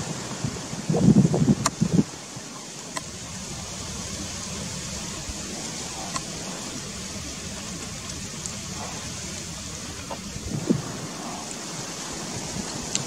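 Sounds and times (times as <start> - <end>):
wind rushing over microphone: 0.0 - 13.0
faint ticks: 2.9 - 3.2, 5.6 - 6.4, 7.6 - 10.4.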